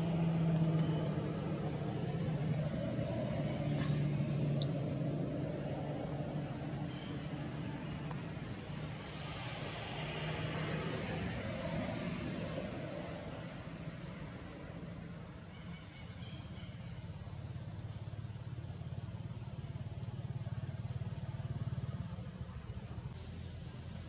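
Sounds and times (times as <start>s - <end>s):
high-pitched hiss: 12.8s - 24.0s.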